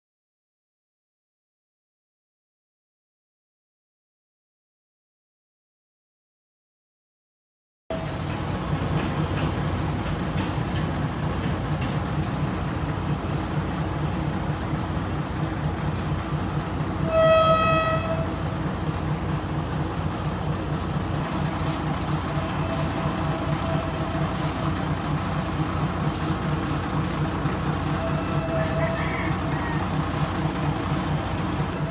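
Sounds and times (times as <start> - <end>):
diesel train engine idling: 7.9 - 31.9
train horn blast: 17.0 - 18.4, 22.4 - 24.6, 27.8 - 29.8.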